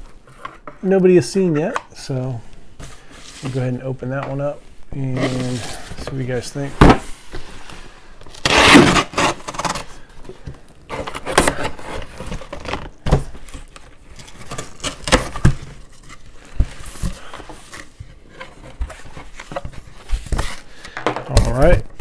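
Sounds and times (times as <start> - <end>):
blade slitting packing tape: 8.4 - 9.8.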